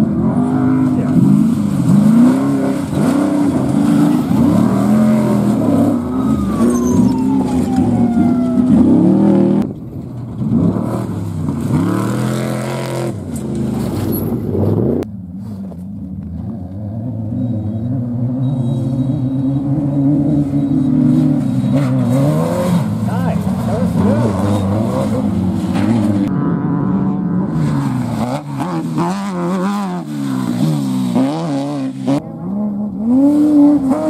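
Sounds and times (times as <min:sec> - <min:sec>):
race car engines revving: 0:00.0 - 0:34.0.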